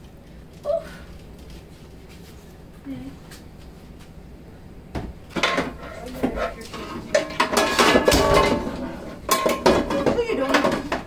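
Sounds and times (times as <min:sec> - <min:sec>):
metal pots and pans clattering: 0:05.3 - 0:11.0.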